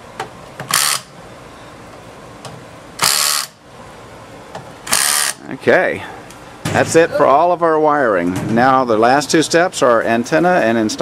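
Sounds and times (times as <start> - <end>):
cordless power screwdriver: 3.0 - 3.5, 4.9 - 5.4.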